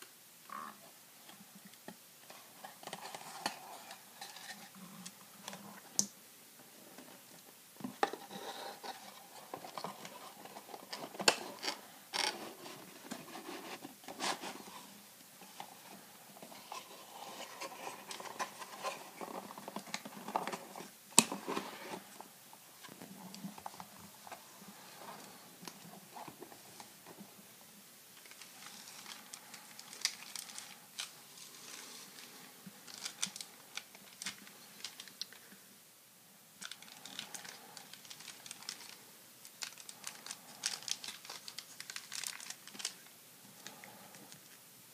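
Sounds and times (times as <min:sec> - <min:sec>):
hands handling cardboard box: 0:07.8 - 0:27.2
foil packs crinkling: 0:28.2 - 0:35.4, 0:36.6 - 0:43.8.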